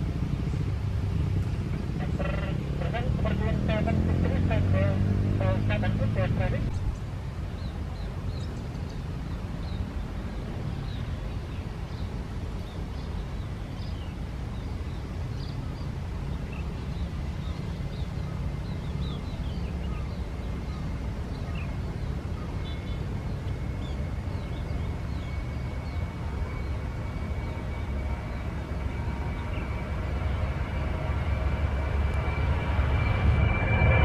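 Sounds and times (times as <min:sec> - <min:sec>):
distant jet engine rumble: 0:00.0 - 0:34.0
thin jet engine whine: 0:00.0 - 0:34.0
small birds chirping: 0:06.8 - 0:30.5.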